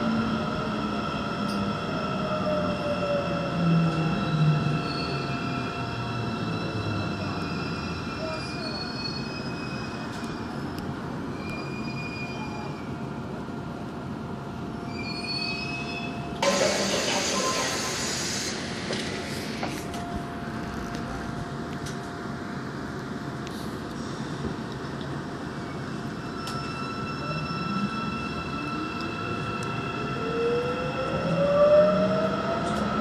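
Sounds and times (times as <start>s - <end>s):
high wheel squeals: 14.9s - 16.6s
train rumble: 16.2s - 33.0s
loud air brake hiss: 16.4s - 19.8s.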